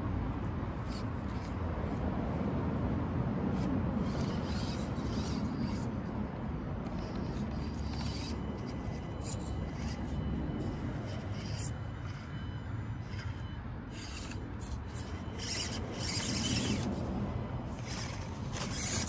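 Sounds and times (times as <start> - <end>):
low outdoor rumble: 0.0 - 19.0
toy car scraping on stone: 0.4 - 2.5, 3.5 - 19.0.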